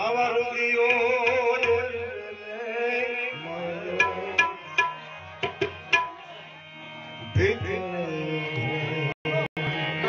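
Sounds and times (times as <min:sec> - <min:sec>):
harmonium drone: 0:00.0 - 0:10.0
tabla strokes: 0:03.8 - 0:06.4.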